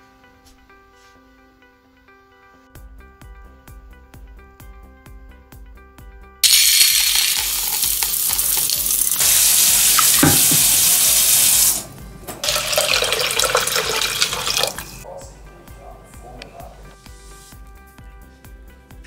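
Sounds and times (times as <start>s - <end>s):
rice being washed by hand: 6.4s - 15.0s
water running into a pot: 6.4s - 15.0s.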